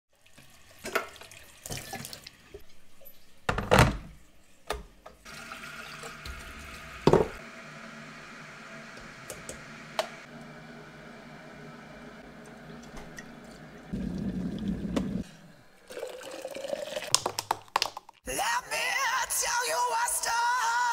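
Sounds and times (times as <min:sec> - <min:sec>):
water running from tap: 0:00.1 - 0:02.6, 0:05.2 - 0:07.4, 0:12.3 - 0:15.2.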